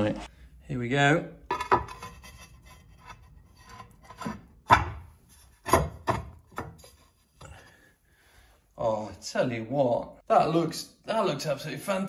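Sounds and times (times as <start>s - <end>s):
floor tile scraping: 1.5s - 4.5s.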